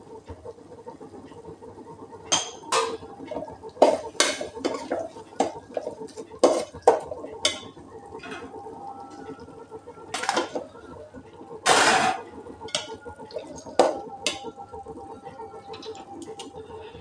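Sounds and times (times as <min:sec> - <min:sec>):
metal spoon stirring in a pot: 0:03.8 - 0:07.7.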